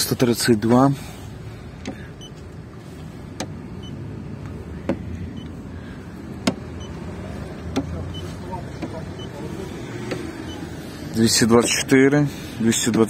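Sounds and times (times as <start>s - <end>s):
probe tapping car body: 3.3s - 3.8s, 4.4s - 5.6s, 6.2s - 9.4s.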